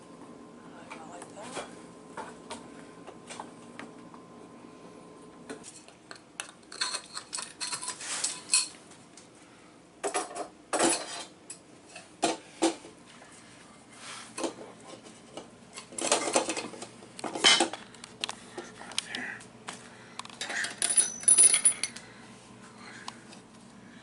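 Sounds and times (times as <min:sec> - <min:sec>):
metal rods clattering against sink: 0:06.7 - 0:08.8, 0:10.0 - 0:11.3.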